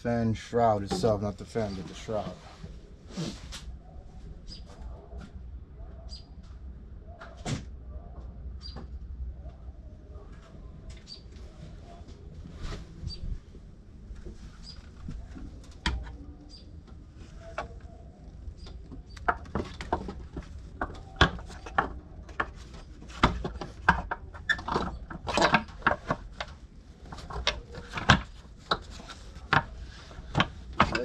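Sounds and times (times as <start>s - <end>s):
plastic shroud knocking and scraping: 18.7s - 31.0s.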